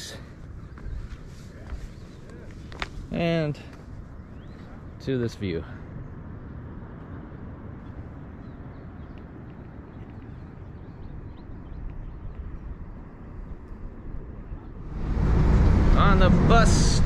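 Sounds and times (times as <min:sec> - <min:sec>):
wind rushing over microphone: 0:05.8 - 0:17.0.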